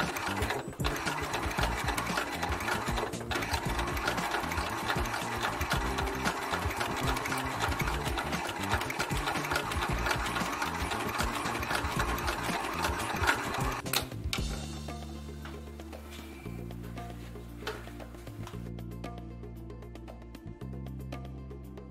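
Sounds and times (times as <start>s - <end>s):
sewing machine stitching: 0.0s - 13.9s.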